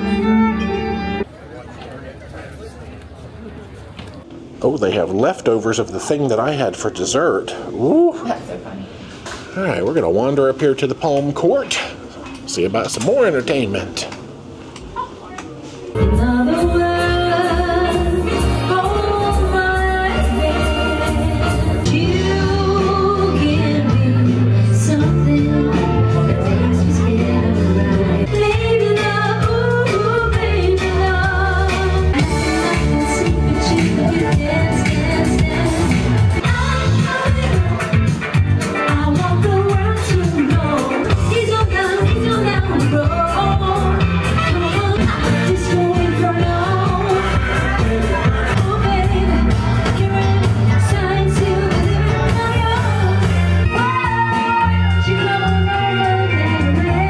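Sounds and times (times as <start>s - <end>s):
amplified backing music: 0.0s - 1.3s, 15.9s - 57.0s
woman singing into microphone: 16.0s - 57.0s.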